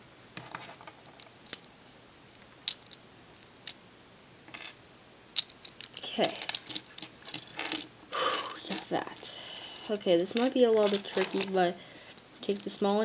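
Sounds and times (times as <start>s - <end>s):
plastic puzzle pieces clicking: 5.4s - 13.0s.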